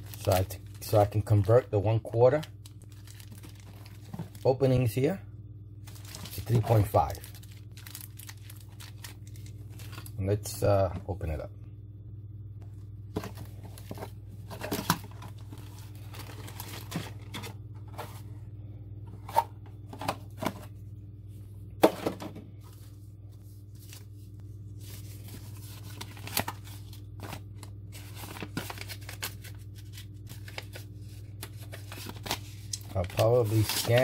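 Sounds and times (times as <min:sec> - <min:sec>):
plastic packaging crinkling: 0:00.0 - 0:01.6, 0:02.4 - 0:04.7, 0:05.8 - 0:10.2, 0:13.2 - 0:17.5, 0:24.8 - 0:34.0
steady low hum: 0:00.0 - 0:34.0.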